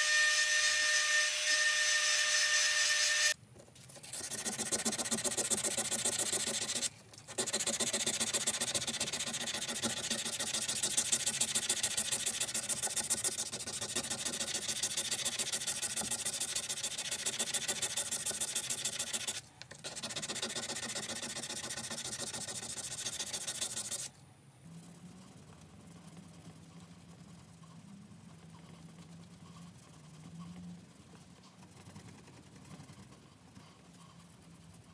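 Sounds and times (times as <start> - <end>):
sandpaper rasping on steel blade: 0.0 - 24.1.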